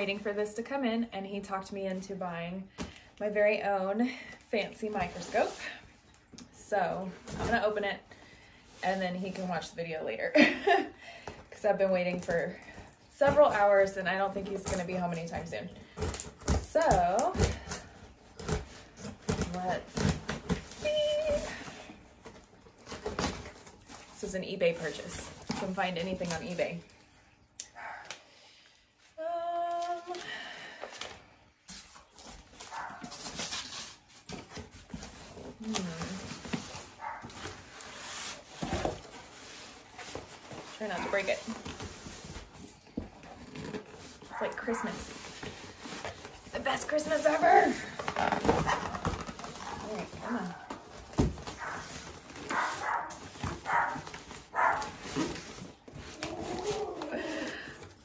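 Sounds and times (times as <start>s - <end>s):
cardboard and paper rustling: 1.3s - 10.5s, 11.2s - 27.1s, 29.6s - 58.0s
dog barking: 27.8s - 28.1s, 32.7s - 33.0s, 52.5s - 54.0s, 54.6s - 54.9s
dog whining: 56.1s - 57.6s.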